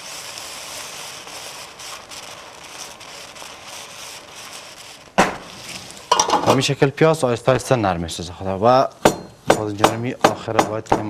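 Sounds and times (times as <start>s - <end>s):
vegetables sizzling in a pan: 0.0s - 7.1s
sharp loud knock: 5.2s - 5.4s, 9.0s - 11.0s.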